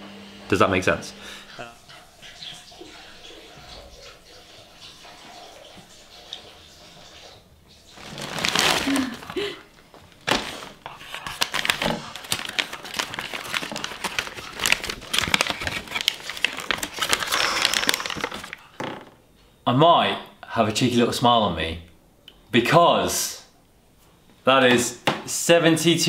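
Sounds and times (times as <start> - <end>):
foil and paper crinkling: 7.9 - 18.7.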